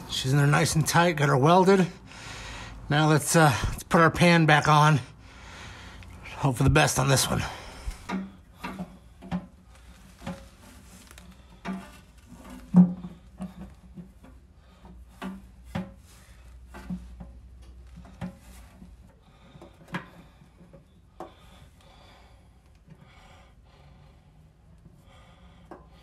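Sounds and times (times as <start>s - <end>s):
metal knocks and scraping: 6.5s - 20.8s.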